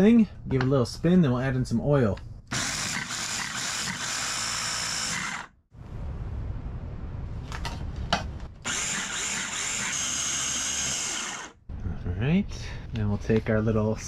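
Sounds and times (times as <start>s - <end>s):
food processor motor whirring: 2.5s - 5.5s, 8.7s - 11.5s.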